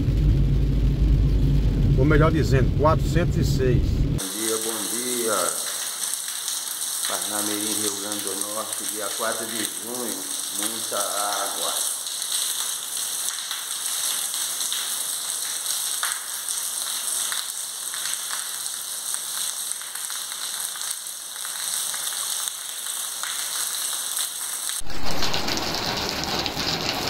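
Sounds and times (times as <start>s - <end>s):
low rumble: 0.0s - 4.2s
heavy rain rushing: 0.0s - 27.0s
rain on a paved street: 4.2s - 27.0s.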